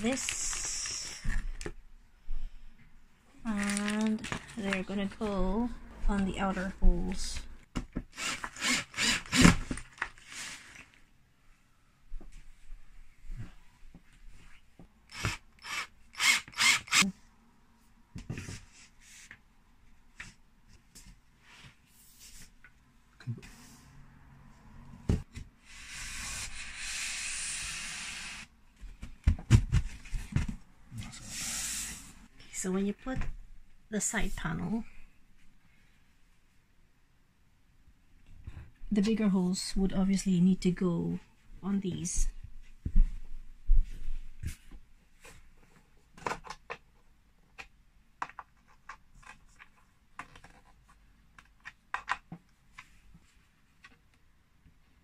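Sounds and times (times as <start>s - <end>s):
hissing rub of panels: 31.1s - 32.3s.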